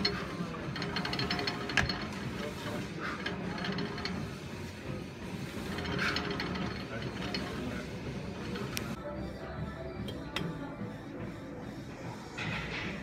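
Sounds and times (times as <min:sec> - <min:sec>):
weight machine rumbling: 0:00.0 - 0:09.0.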